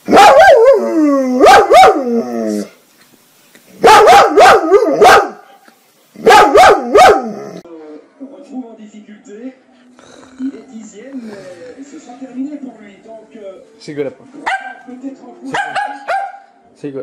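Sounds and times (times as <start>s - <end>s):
dog barking and howling: 0.0s - 2.7s, 3.8s - 5.4s, 6.2s - 7.6s, 15.6s - 16.5s.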